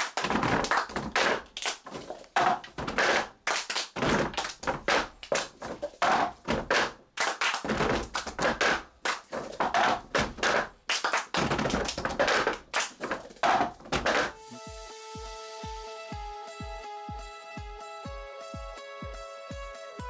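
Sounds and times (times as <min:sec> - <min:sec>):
percussive taps and thunks: 0:00.0 - 0:03.4, 0:04.0 - 0:07.0, 0:07.6 - 0:14.4.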